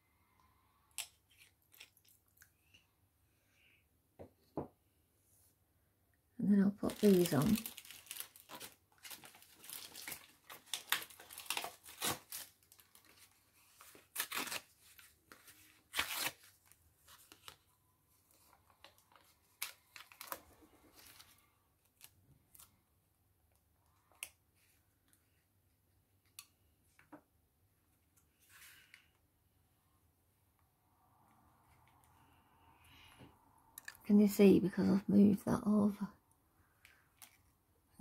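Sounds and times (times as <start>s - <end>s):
paper crinkling and tearing: 6.8s - 17.6s, 18.3s - 22.7s.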